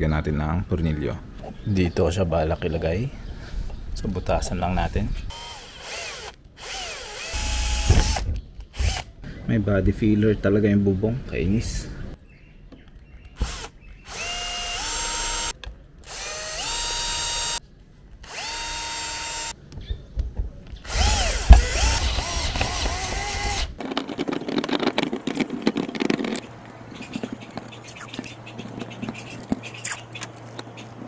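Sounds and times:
cordless drill whining: 5.3s - 9.0s, 13.4s - 15.5s, 16.1s - 17.6s, 18.2s - 19.5s, 20.8s - 23.8s
scraping and clicks: 21.5s - 30.8s.

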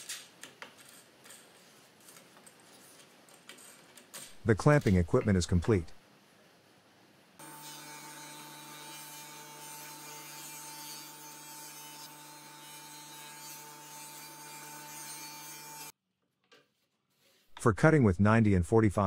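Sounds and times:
table saw running: 7.4s - 15.9s.

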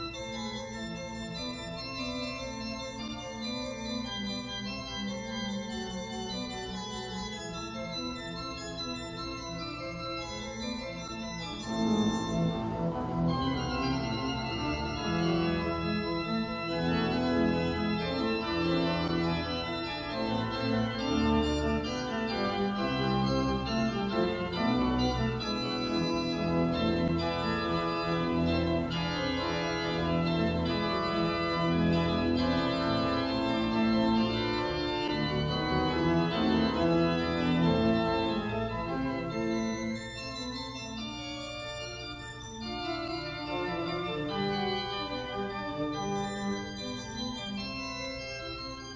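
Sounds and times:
organ chords: 0.0s - 48.9s.

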